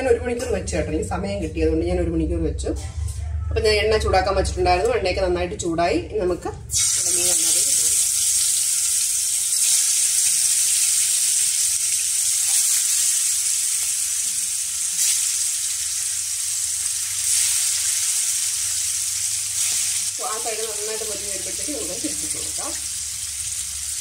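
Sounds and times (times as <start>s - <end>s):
fish sizzling in hot oil: 6.8s - 24.0s.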